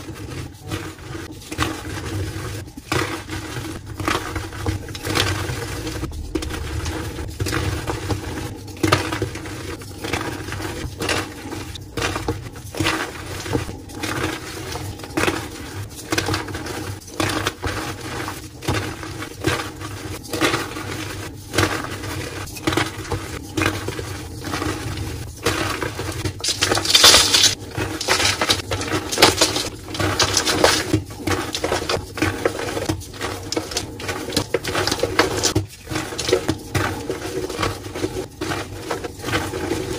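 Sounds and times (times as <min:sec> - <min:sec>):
chalk powder falling on pile: 0:25.7 - 0:37.1.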